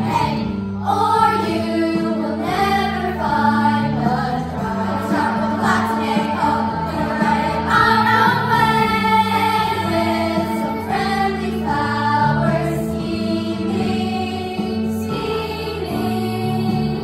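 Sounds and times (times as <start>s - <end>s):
children's choir singing: 0.0s - 17.0s
instrumental accompaniment: 0.0s - 17.0s.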